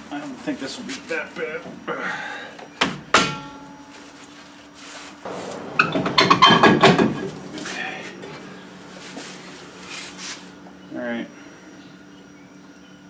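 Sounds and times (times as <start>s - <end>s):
metal scraping and rattling: 5.2s - 10.6s.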